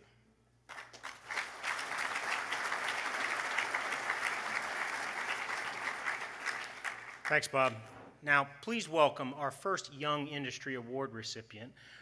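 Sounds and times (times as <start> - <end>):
audience applauding: 0.7 - 7.5.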